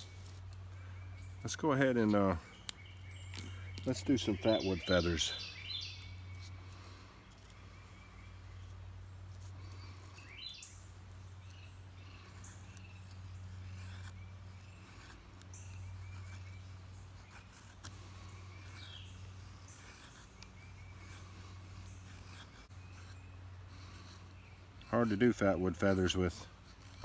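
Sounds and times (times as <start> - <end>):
birds chirping: 0.0 - 27.0
steady low hum: 0.0 - 27.0
knife scraping wood: 1.4 - 27.0.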